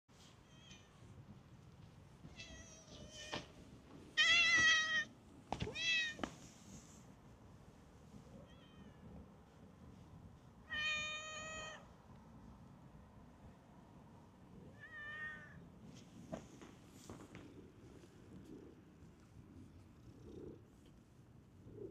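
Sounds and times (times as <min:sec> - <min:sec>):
cat meowing: 0:10.7 - 0:11.8, 0:14.7 - 0:15.6.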